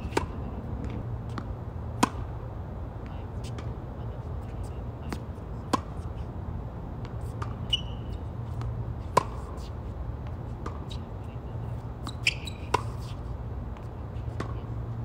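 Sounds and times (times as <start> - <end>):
tennis ball bouncing: 0.0 - 2.4, 5.1 - 6.1, 7.0 - 11.1, 11.7 - 13.2, 13.8 - 14.6
steady low hum: 0.0 - 15.0
rackets striking tennis ball: 9.1 - 9.4.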